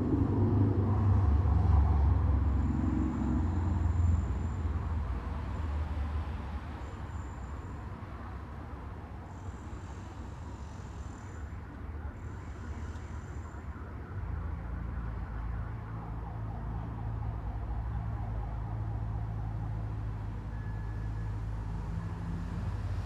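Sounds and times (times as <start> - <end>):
traffic hum: 0.0 - 23.0.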